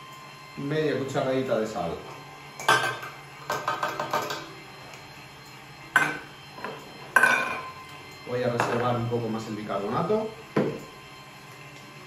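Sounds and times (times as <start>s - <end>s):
steel bowls clinking: 6.0s - 7.8s.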